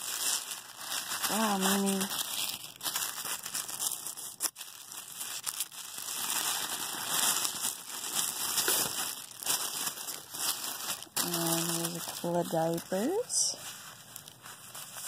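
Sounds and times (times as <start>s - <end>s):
tissue paper crinkling: 0.0s - 15.0s.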